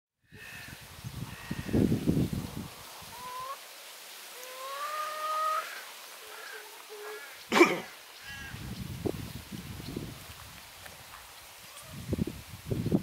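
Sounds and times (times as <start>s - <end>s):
hens calling and clucking: 2.8s - 8.6s.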